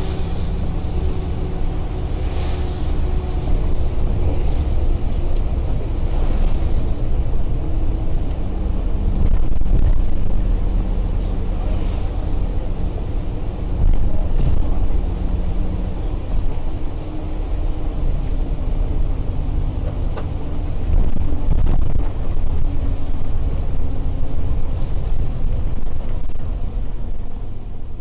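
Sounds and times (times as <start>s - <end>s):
car road and engine rumble: 0.0s - 28.0s.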